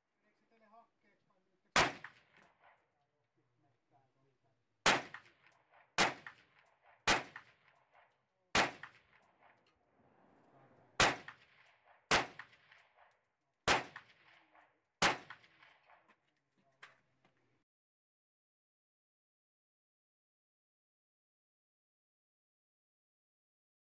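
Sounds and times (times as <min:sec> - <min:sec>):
rifle shots with ringing echo: 0:01.7 - 0:02.9, 0:04.8 - 0:16.1.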